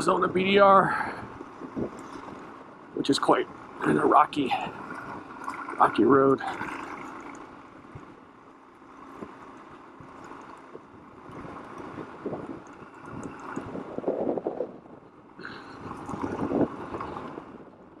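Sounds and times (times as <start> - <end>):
wind noise on microphone: 0.0 - 8.2, 10.0 - 18.0
motorcycle rattling over rocks: 3.2 - 14.6.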